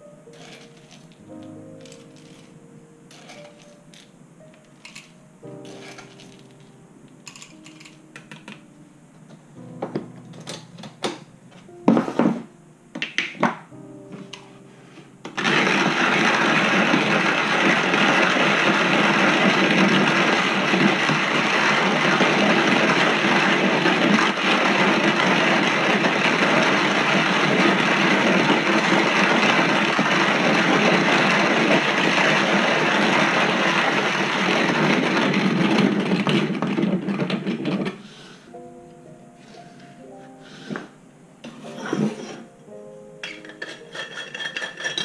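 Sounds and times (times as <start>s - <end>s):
hand-crank coffee mill grinding: 0.3s - 8.6s, 15.3s - 38.0s, 41.4s - 42.4s, 43.2s - 45.0s.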